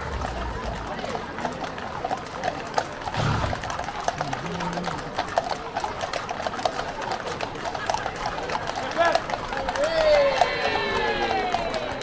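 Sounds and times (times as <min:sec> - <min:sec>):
horse hooves on tarmac: 0:00.0 - 0:12.0.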